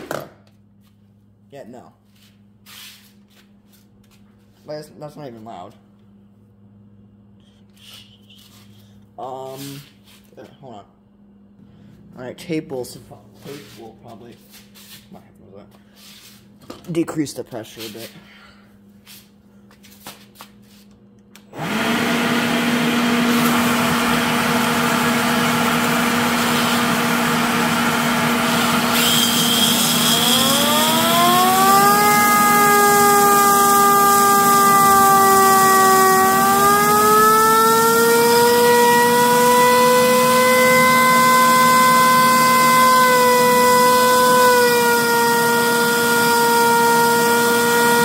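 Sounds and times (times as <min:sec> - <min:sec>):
leaf blower rushing air: 0:21.6 - 0:48.0
siren wailing: 0:30.1 - 0:48.0.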